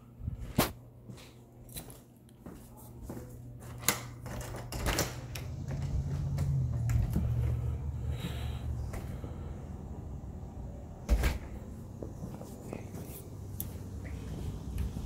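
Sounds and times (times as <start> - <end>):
footsteps: 0.3 - 3.8, 11.5 - 15.0.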